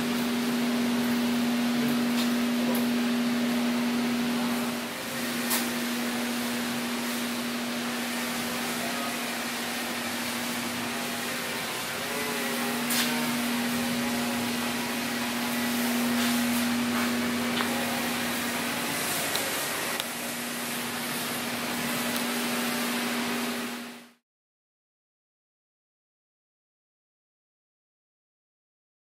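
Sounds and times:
machinery hum: 0:00.0 - 0:24.2.

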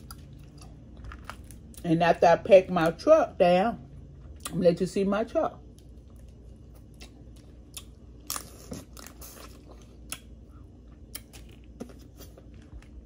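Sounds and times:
chewing: 0:05.8 - 0:13.0.

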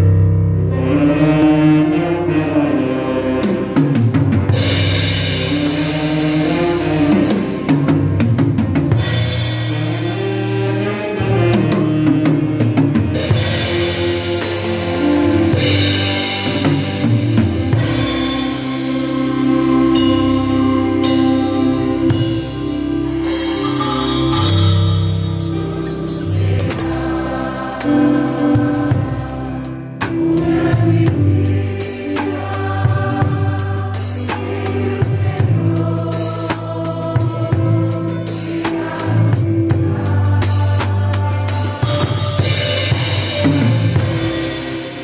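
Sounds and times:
chords: 0:00.0 - 0:45.0
drum kit played with sticks: 0:00.0 - 0:45.0
held bass notes: 0:00.0 - 0:45.0.

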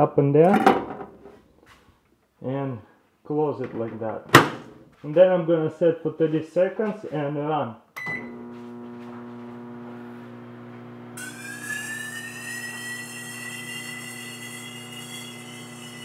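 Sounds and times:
microwave oven beep: 0:08.0 - 0:08.6
microwave oven humming: 0:08.0 - 0:16.0
high-pitched plasma whine: 0:11.2 - 0:16.0.

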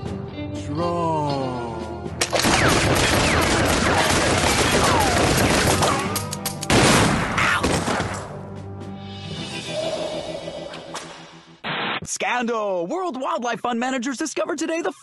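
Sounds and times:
rapid gunshots: 0:02.2 - 0:08.2.

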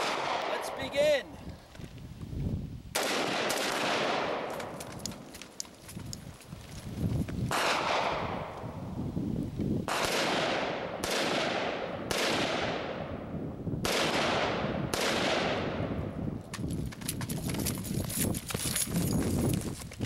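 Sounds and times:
rifle shots with echo: 0:00.0 - 0:01.1, 0:03.0 - 0:04.8, 0:07.5 - 0:08.5, 0:09.9 - 0:16.0.

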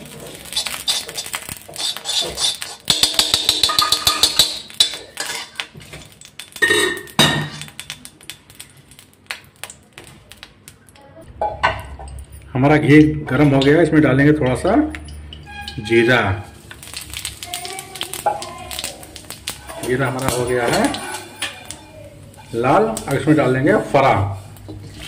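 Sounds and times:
metal spoon clinking on metal pan: 0:00.5 - 0:08.4, 0:14.4 - 0:23.5.

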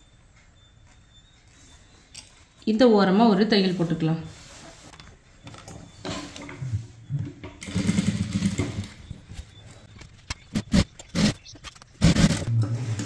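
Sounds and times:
sewing machine running: 0:07.6 - 0:08.9, 0:12.0 - 0:13.0
sharp clicks: 0:10.0 - 0:12.5.

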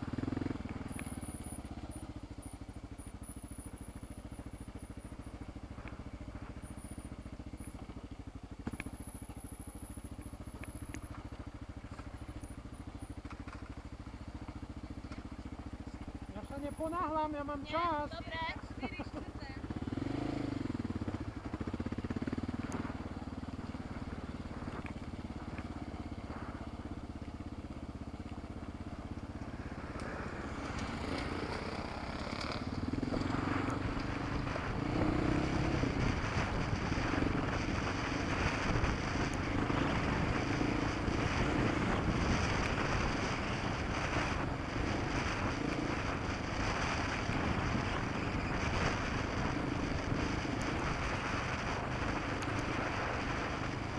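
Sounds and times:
motorcycle engine accelerating: 0:00.0 - 0:53.9
wind noise: 0:29.5 - 0:53.9.

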